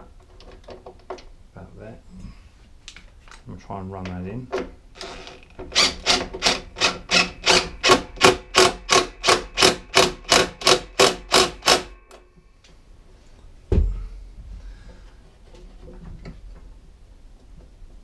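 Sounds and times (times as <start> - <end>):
impact wrench hammering: 5.7 - 12.2
heavy thump: 13.7 - 14.2.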